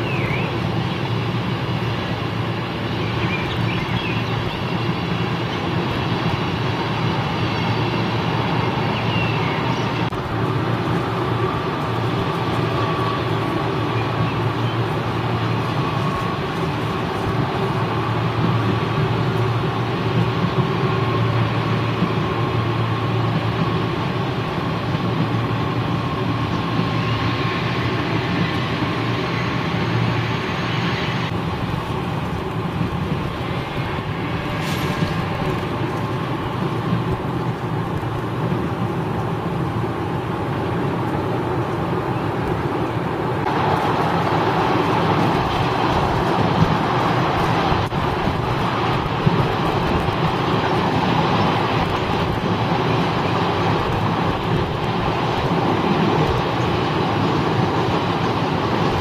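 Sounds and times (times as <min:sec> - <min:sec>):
electric train rumbling on tracks: 0:00.0 - 0:59.0.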